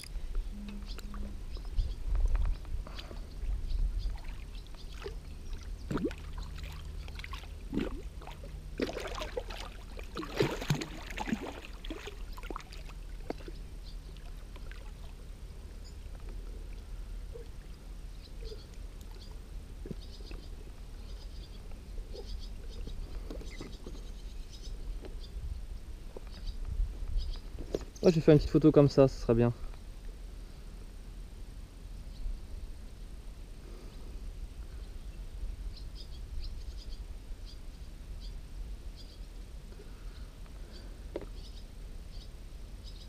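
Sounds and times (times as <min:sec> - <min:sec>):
steady low rumble: 0:00.0 - 0:42.9
fish splashing in water: 0:04.1 - 0:15.2.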